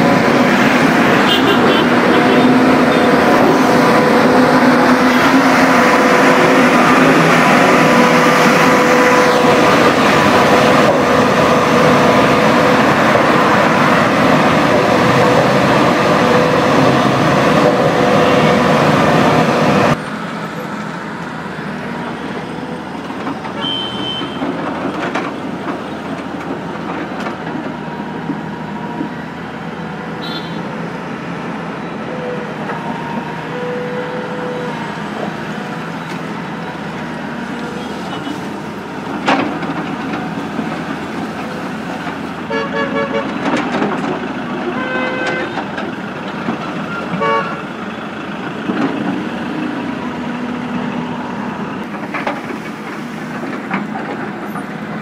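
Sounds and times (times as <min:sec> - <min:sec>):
excavator running: 0:00.0 - 0:55.0
street traffic: 0:00.0 - 0:55.0
vehicle horn toots: 0:01.2 - 0:03.1, 0:23.6 - 0:24.4, 0:30.2 - 0:30.7, 0:42.5 - 0:43.3, 0:44.8 - 0:45.6, 0:47.2 - 0:47.6.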